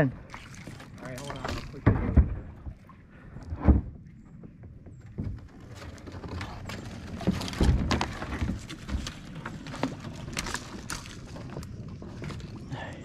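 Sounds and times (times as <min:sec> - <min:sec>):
twigs cracking: 0:06.4 - 0:12.5.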